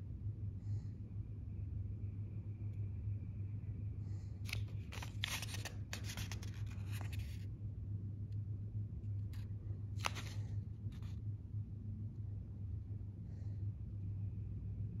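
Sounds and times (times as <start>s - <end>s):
low steady hum: 0.0s - 15.0s
paper pages rustling: 4.5s - 7.4s, 9.3s - 11.2s.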